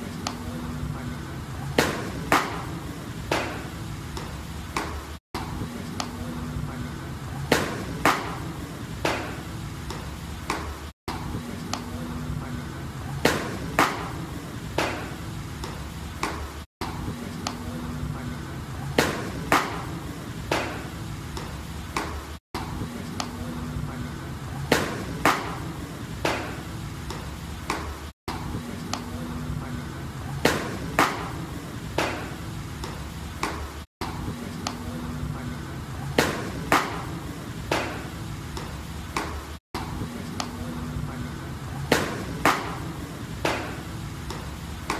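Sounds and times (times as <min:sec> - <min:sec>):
balls smacking into a mitt: 0:01.8 - 0:05.0, 0:07.5 - 0:10.8, 0:13.2 - 0:14.2, 0:14.8 - 0:17.6, 0:19.0 - 0:22.2, 0:24.7 - 0:28.0, 0:30.4 - 0:31.4, 0:36.2 - 0:40.6, 0:41.9 - 0:44.9.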